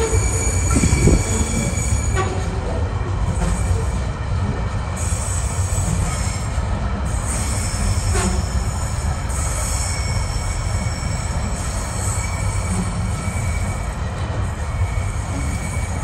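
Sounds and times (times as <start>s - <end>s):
wheel squeal: 0.0s - 2.5s, 7.2s - 14.0s, 14.8s - 16.0s
train wagons rumbling past: 0.0s - 16.0s.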